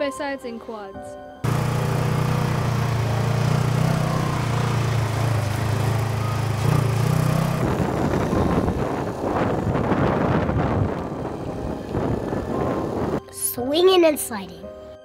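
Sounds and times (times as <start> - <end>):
small engine running: 1.4 - 13.2.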